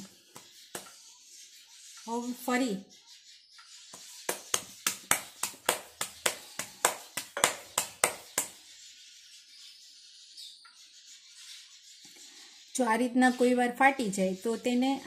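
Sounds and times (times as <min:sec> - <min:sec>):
dough slapped between palms: 0:04.0 - 0:08.6.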